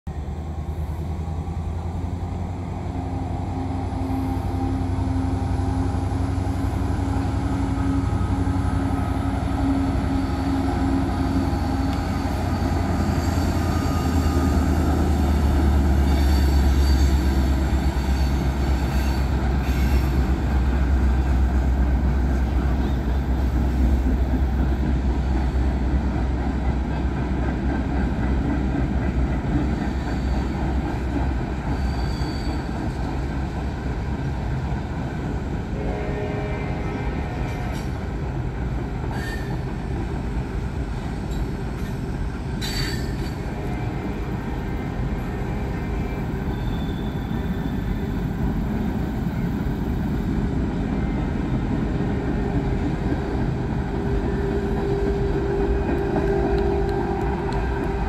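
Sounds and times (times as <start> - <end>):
freight train rumbling past: 0.0 - 58.0
wheel squeals: 10.2 - 20.2, 31.6 - 33.0, 46.3 - 48.2.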